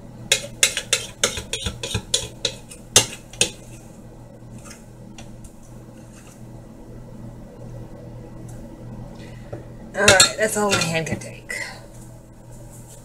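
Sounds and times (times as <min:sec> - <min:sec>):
metal utensil clinking against dishes: 0:00.3 - 0:03.6, 0:10.0 - 0:11.0.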